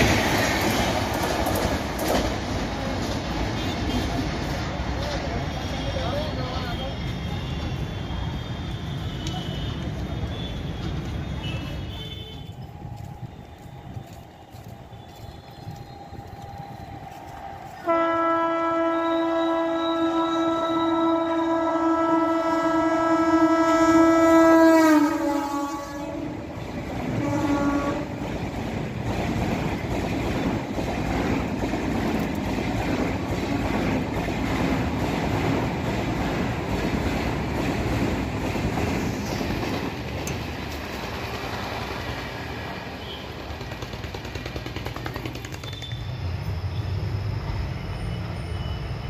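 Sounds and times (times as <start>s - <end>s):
wheels clacking over rail joints: 0.0s - 5.4s, 26.6s - 46.1s
passenger train rushing past: 0.0s - 49.0s
locomotive horn: 6.7s - 12.6s, 17.8s - 26.5s, 27.1s - 28.2s.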